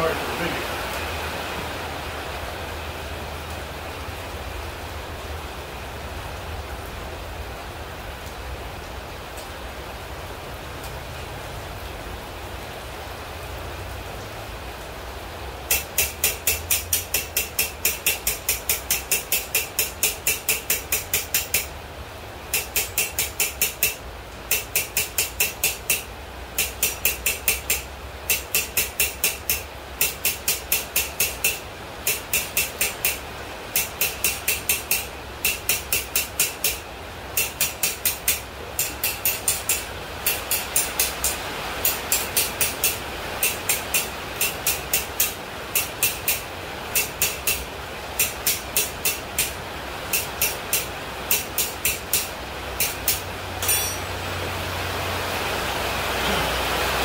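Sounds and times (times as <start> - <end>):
rain hiss: 0.0 - 57.0
hammer striking hot metal on anvil: 15.7 - 21.7, 22.5 - 33.2, 33.8 - 36.8, 37.4 - 46.4, 47.0 - 47.6, 48.2 - 54.1.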